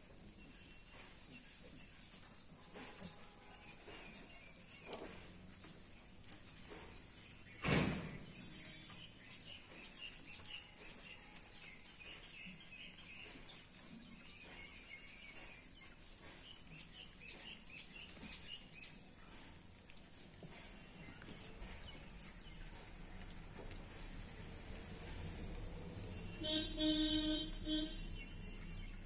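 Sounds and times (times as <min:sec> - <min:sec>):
small birds chirping: 0:00.0 - 0:29.0
sharp thump: 0:07.6 - 0:08.2.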